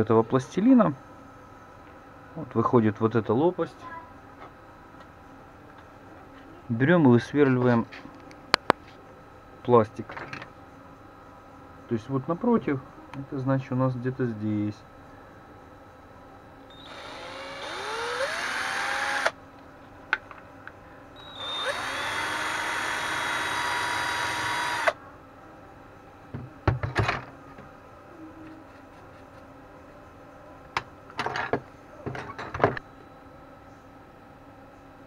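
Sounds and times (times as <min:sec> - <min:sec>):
cordless drill whining: 0:16.7 - 0:19.4, 0:21.2 - 0:25.0.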